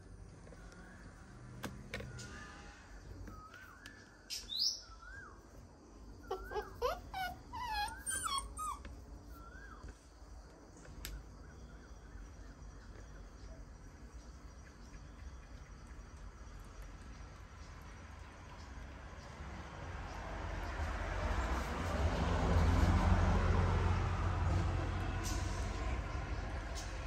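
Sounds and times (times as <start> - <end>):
puppies whining and yelping: 6.2 - 9.9.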